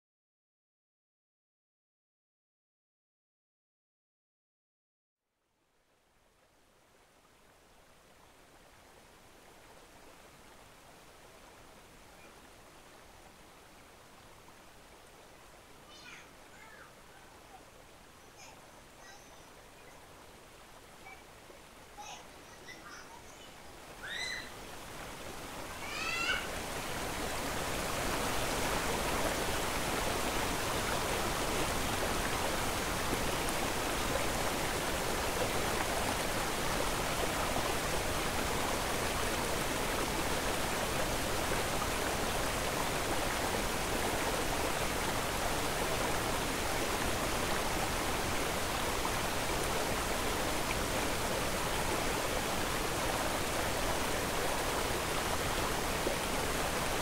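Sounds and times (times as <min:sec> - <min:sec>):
rising bird chirps: 0:24.0 - 0:24.6.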